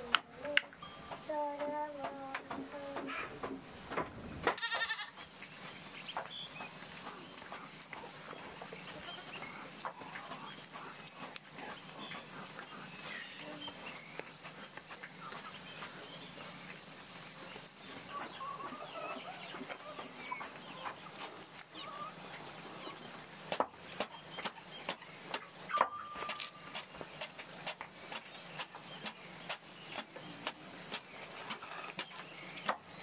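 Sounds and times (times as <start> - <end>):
chickens clucking: 4.4 - 33.0.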